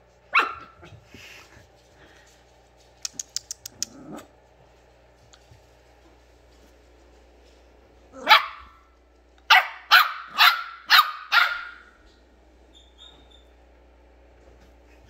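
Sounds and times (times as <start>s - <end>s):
puppy barking high-pitched: 0.3s - 0.9s, 8.2s - 8.8s, 9.5s - 12.0s.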